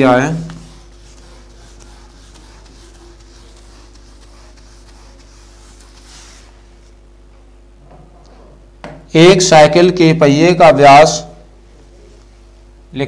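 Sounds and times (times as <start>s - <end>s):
duster wiping whiteboard: 0.0s - 7.0s
steady low hum: 0.0s - 13.0s.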